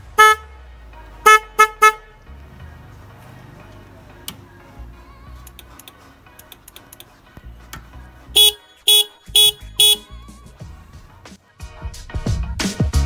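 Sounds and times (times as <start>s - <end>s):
faint background music: 0.0s - 13.0s
electric horn beeps: 8.4s - 10.1s.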